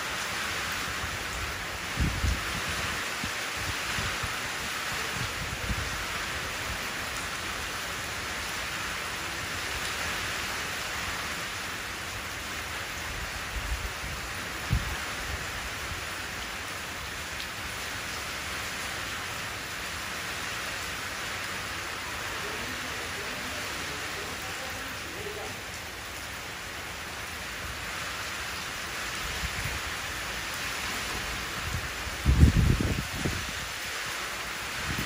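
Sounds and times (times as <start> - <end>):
rain falling into puddle: 0.0 - 35.0.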